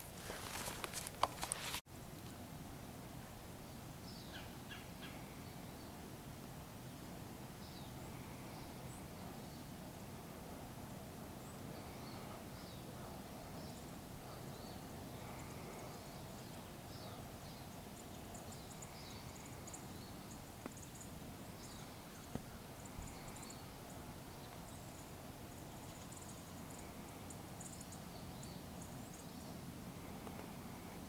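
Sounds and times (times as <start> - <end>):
footsteps in dry leaves: 0.0 - 1.8.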